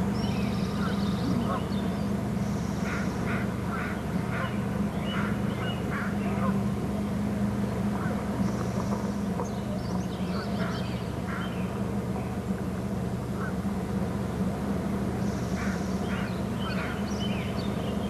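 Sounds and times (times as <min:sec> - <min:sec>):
steady low hum: 0:00.0 - 0:18.0
bird chirping: 0:08.4 - 0:11.7, 0:15.2 - 0:18.0.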